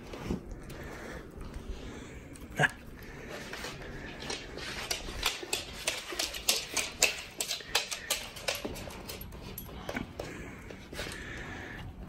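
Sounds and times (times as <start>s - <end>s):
puppy gnawing on a bone: 2.3s - 12.0s.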